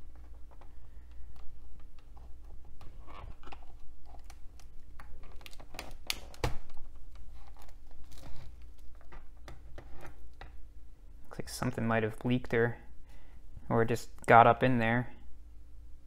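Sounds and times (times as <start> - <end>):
plastic clicks and creaks: 0.1 - 10.6.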